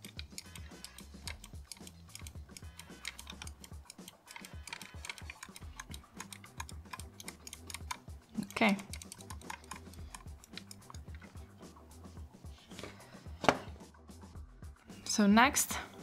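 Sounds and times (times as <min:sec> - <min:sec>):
fingers rubbing grip tape clicks: 0:00.0 - 0:11.3.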